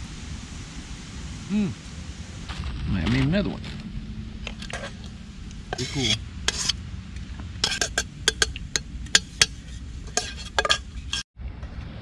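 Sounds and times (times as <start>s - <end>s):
metal pot clinking: 5.7s - 6.8s, 7.6s - 11.2s.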